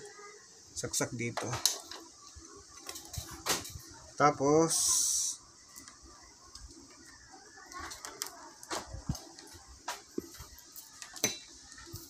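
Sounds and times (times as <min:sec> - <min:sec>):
cables and plugs clicking: 0:05.6 - 0:12.0.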